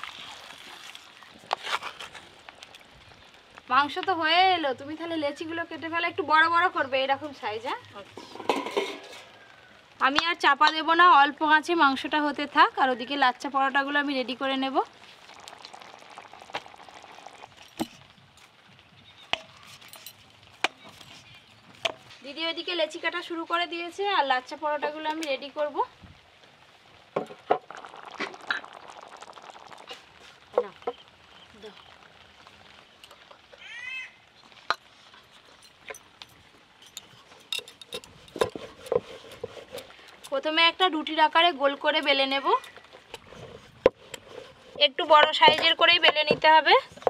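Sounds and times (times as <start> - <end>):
faint steady hiss: 0.0 - 47.0
knocks and clinks on steel bowl: 8.2 - 9.2, 36.8 - 39.0.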